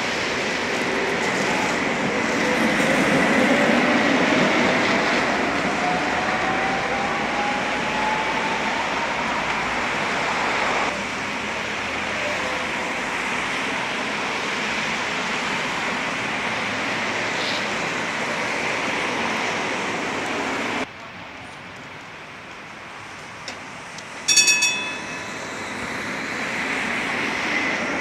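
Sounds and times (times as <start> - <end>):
tram passing: 0.0 - 28.0
tyres hissing on wet road: 9.1 - 24.2.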